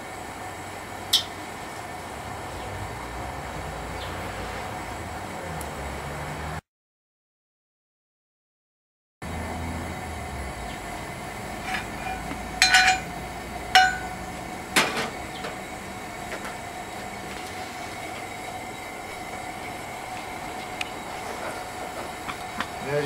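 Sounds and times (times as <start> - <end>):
metal ladle clinking on skillet: 11.6 - 13.2, 13.8 - 14.2
skillet clunking onto grate: 11.6 - 13.2, 13.8 - 15.6.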